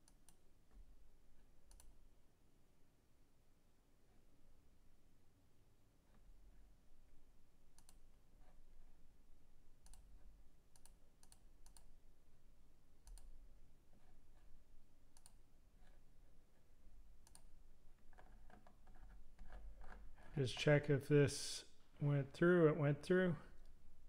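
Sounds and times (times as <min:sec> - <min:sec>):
faint computer mouse clicks: 0:01.7 - 0:01.9, 0:07.7 - 0:08.0, 0:10.7 - 0:11.9, 0:13.0 - 0:13.3, 0:15.1 - 0:16.0, 0:17.2 - 0:17.5.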